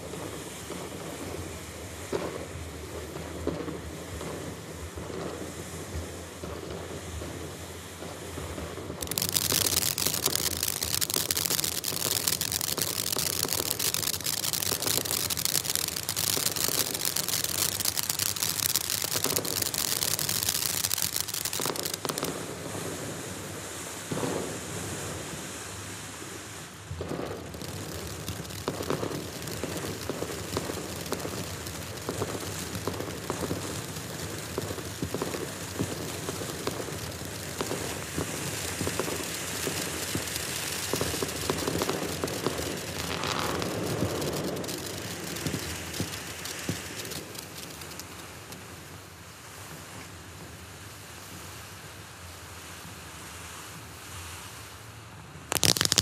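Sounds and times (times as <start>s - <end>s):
firework fountain hissing and crackling: 0.0s - 56.0s.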